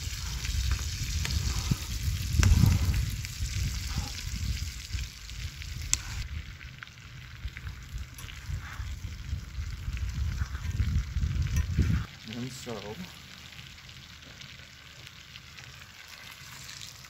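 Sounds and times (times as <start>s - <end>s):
low rumble: 0.0s - 12.2s
steak sizzling in a pan: 0.0s - 17.0s.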